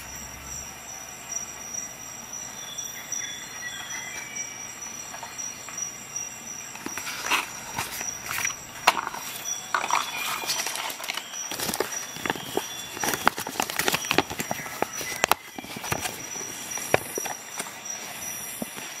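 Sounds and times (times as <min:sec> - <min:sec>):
thin steady high tone: 0:00.0 - 0:19.0
paper crackling and rustling: 0:06.8 - 0:19.0.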